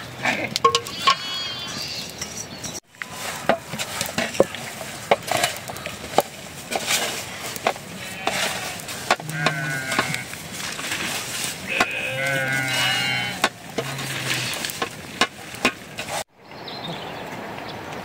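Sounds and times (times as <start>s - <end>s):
scrapes and knocks on metal: 3.2s - 16.2s.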